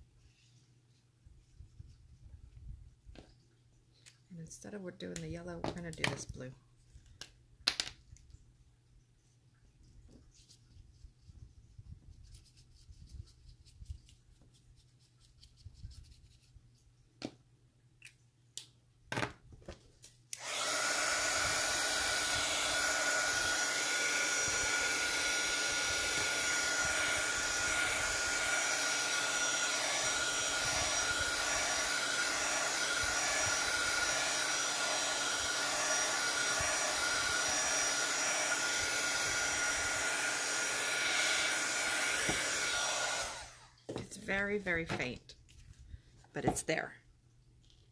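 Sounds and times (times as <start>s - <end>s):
heat tool blowing with whine: 20.4s - 44.1s.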